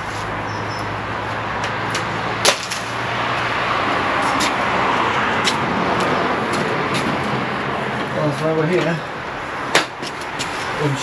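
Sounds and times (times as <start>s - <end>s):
steady traffic rush: 0.0s - 11.0s.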